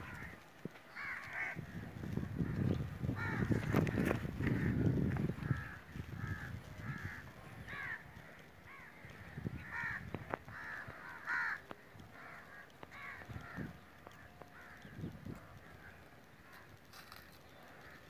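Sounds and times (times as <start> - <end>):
crows cawing: 0.0 - 18.0.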